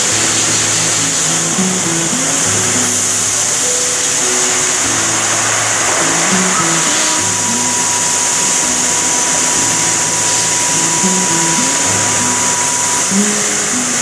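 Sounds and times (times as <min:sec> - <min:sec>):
hissing factory machine: 0:00.0 - 0:14.0
quiet background melody: 0:00.0 - 0:14.0
thin high whine: 0:00.0 - 0:14.0.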